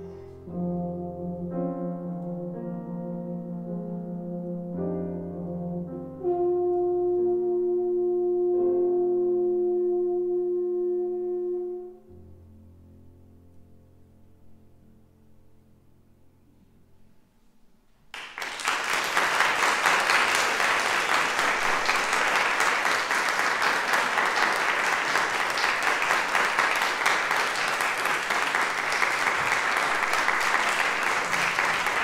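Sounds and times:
audience applauding: 0:18.1 - 0:32.0.

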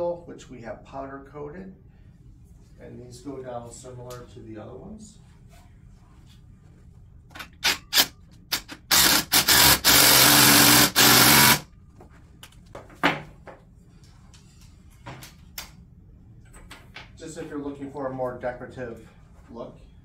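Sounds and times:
drill clicks: 0:07.5 - 0:11.6
cordless drill running: 0:08.8 - 0:11.6.

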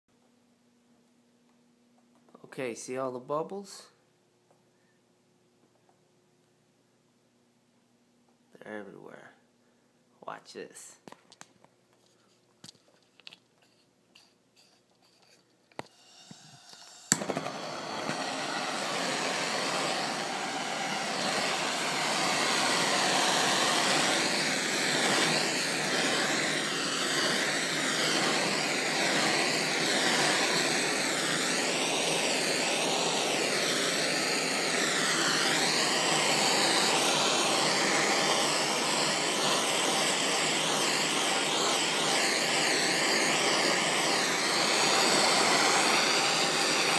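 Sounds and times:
blowtorch lighting click: 0:15.7 - 0:46.9
blowtorch flame rushing: 0:15.9 - 0:46.9.

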